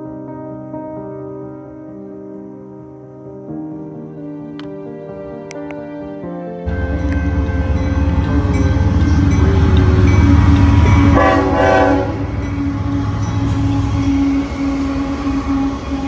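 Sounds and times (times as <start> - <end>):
train rumbling past: 6.6 - 16.0
train horn chord: 6.7 - 16.0.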